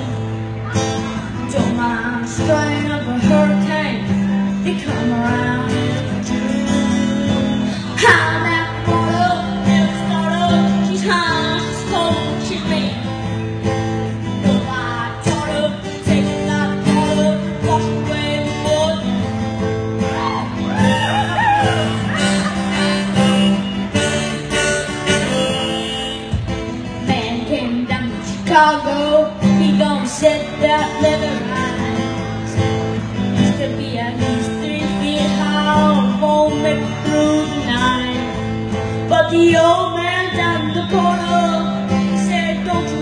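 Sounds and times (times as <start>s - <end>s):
acoustic guitar strumming: 0.0s - 43.0s
harmonica melody: 20.2s - 27.4s.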